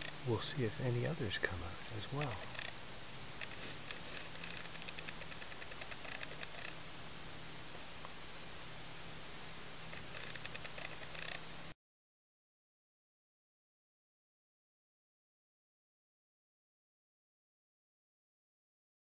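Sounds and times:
crickets chirping: 0.0 - 11.8.

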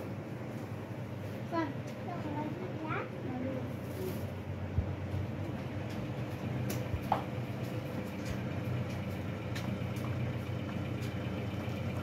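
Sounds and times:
pickup truck engine idling: 5.8 - 12.0.

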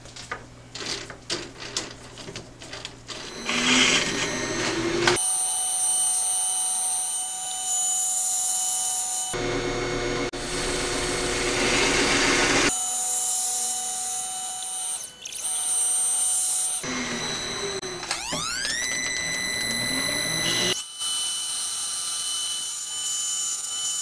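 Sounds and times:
tool cutting metal: 2.8 - 24.0
metal lathe whine: 3.1 - 7.5, 8.6 - 20.9.

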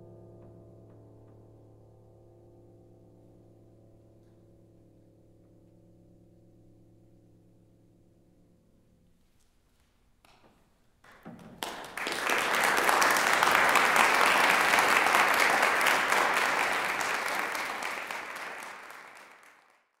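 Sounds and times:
audience applauding: 11.1 - 20.0.

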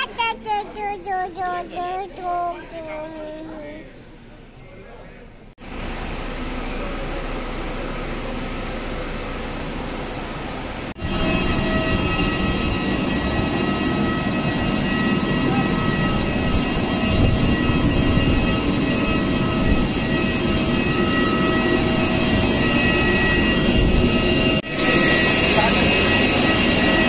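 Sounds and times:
airliner engines running: 5.6 - 27.0.

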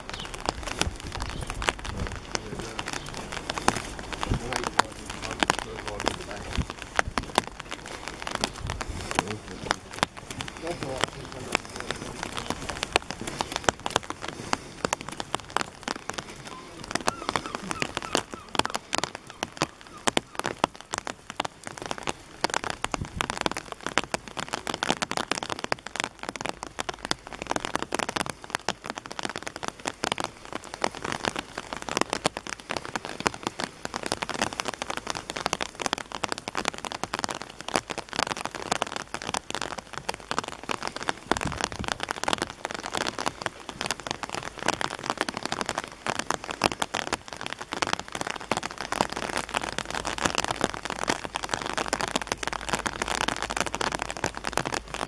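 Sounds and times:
rain falling: 0.0 - 55.0.

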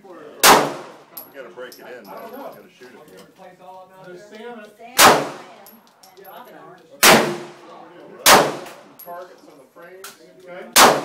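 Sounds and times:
pistol shots with echo: 0.4 - 1.1, 5.0 - 5.5, 7.0 - 7.6, 8.2 - 8.9, 10.7 - 11.0.

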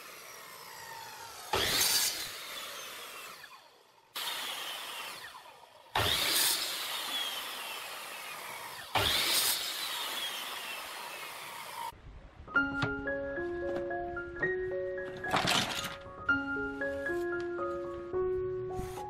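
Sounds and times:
saw blade winding down whine: 0.0 - 11.9
miter saw cutting wood: 0.0 - 12.0.

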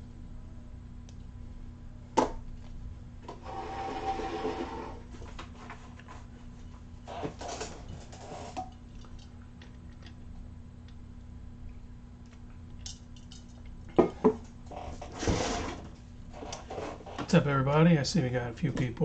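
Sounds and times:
low steady hum: 0.0 - 19.0
rubbing or scraping: 3.4 - 6.3, 14.7 - 17.4.

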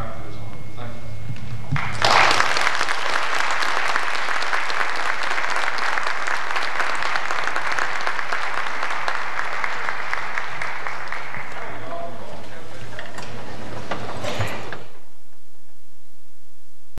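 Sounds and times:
audience applauding: 1.7 - 12.9.

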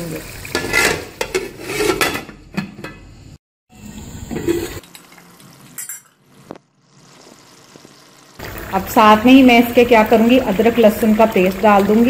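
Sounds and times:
food bubbling in oil: 6.6 - 12.0.

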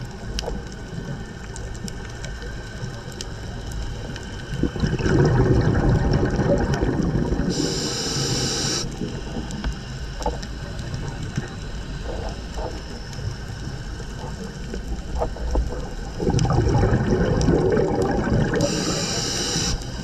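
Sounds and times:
low underwater rumble: 0.0 - 20.0
bubbles rushing underwater: 4.4 - 9.7, 14.8 - 19.7
brief hiss: 7.6 - 8.9, 18.6 - 20.0.

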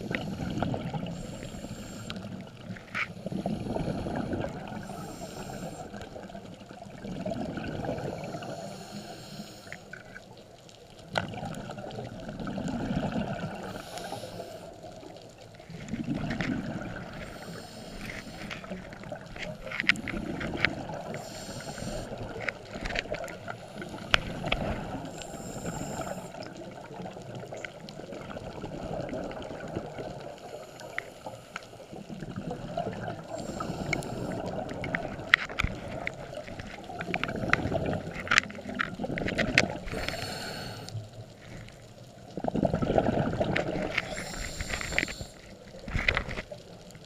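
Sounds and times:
regulator hiss on inhale: 0.0 - 2.4, 3.1 - 6.2, 8.0 - 10.2, 13.6 - 15.0, 17.2 - 18.8, 19.8 - 22.6, 23.5 - 26.6, 30.4 - 32.1, 33.2 - 34.6, 39.9 - 41.7, 43.9 - 46.1
bubbling rumble on exhale: 0.0 - 8.8, 11.1 - 30.9, 31.9 - 46.6.

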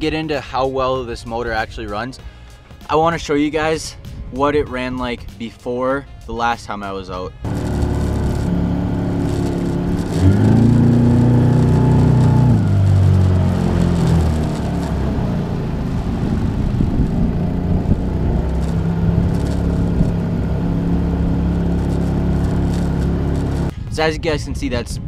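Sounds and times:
outboard motor surging: 7.4 - 23.7.

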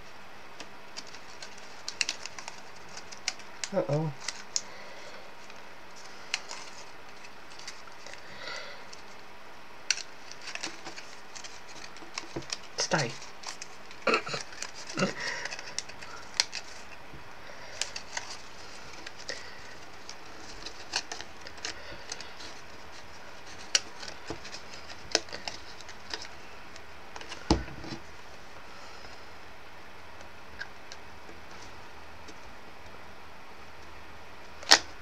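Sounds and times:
paper rustling: 0.6 - 4.8, 5.4 - 9.2, 9.8 - 29.1.

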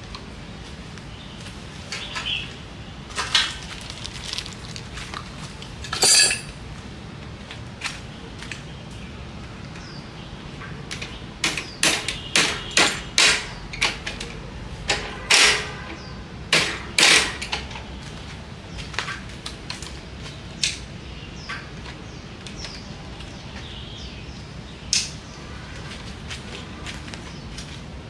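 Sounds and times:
small birds chirping: 1.0 - 5.0, 7.9 - 12.8, 17.9 - 28.0.

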